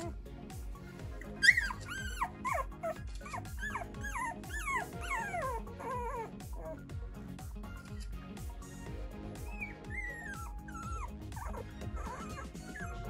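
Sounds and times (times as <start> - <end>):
background music: 0.0 - 13.0
puppy whimpering and squealing: 1.2 - 6.9, 9.4 - 13.0.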